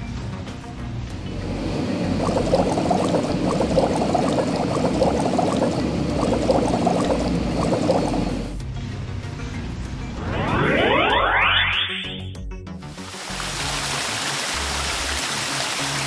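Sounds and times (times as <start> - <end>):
cartoon bubbling foam pops: 2.1 - 8.5.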